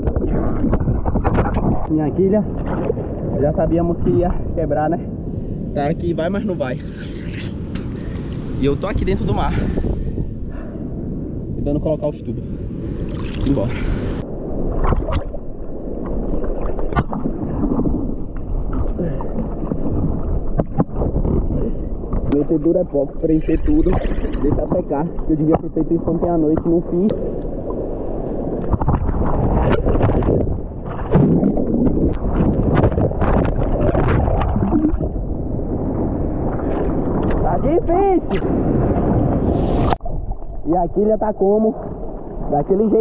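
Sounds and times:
water sloshing and lapping: 0:00.0 - 0:03.4, 0:06.7 - 0:10.3, 0:12.9 - 0:27.8, 0:28.5 - 0:40.8
underwater churning seawater: 0:00.0 - 0:05.6, 0:06.6 - 0:11.5, 0:12.5 - 0:43.0.

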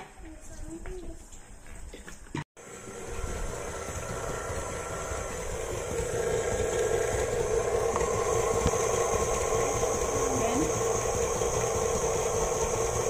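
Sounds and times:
stand mixer motor running: 0:02.6 - 0:13.0.

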